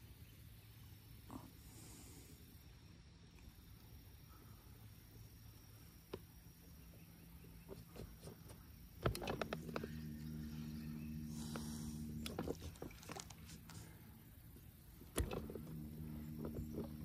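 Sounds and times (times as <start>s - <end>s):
electric motor humming: 9.0s - 17.0s.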